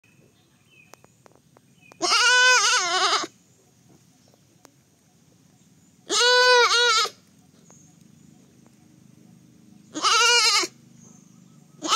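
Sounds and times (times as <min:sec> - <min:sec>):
baby goat bleating: 0:02.0 - 0:03.4, 0:06.1 - 0:07.2, 0:09.9 - 0:10.8.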